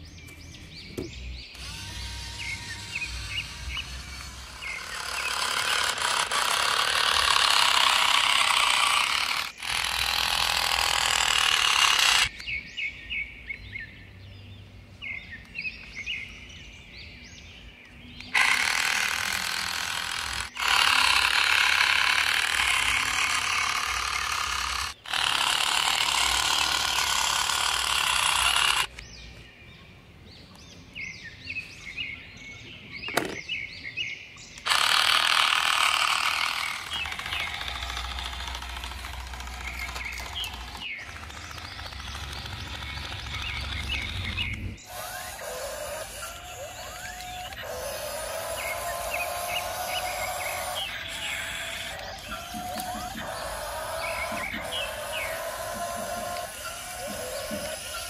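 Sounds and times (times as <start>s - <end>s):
birds chirping: 0.0s - 58.0s
toy motor whirring: 1.5s - 12.4s, 18.2s - 29.0s, 33.1s - 33.4s, 34.6s - 58.0s.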